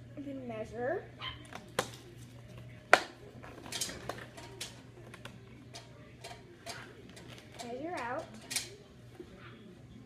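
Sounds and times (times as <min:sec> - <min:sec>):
kitchen items clicking and knocking: 0:02.9 - 0:08.9.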